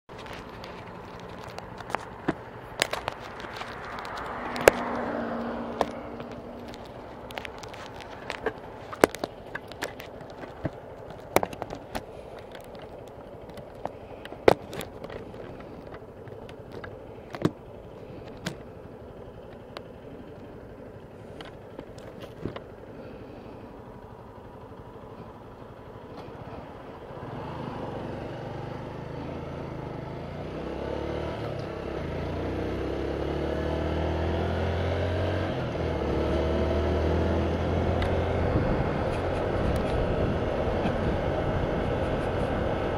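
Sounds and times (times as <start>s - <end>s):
handling clicks and knocks: 0.1s - 4.9s, 5.7s - 20.6s, 21.3s - 22.7s
motorcycle engine accelerating: 0.1s - 42.9s.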